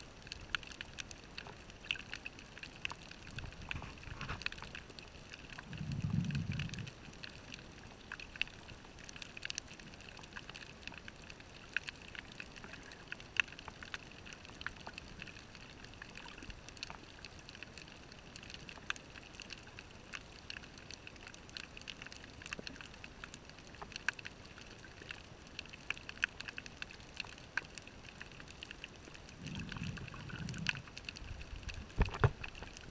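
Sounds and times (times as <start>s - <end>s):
underwater clicks and crackles: 0.0s - 32.9s
diver exhaling bubbles: 5.6s - 7.0s, 29.4s - 31.1s
underwater hiss: 29.3s - 31.2s.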